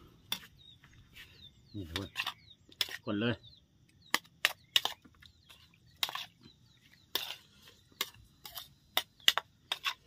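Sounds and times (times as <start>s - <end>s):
faint bird chirps: 0.0s - 9.6s
spoon scraping bowl: 1.2s - 3.1s, 4.1s - 10.0s.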